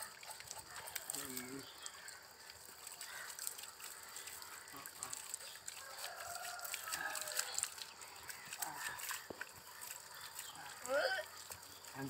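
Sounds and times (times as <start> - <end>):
hose water splashing: 0.0 - 12.0
rooster crowing faintly: 5.7 - 7.8.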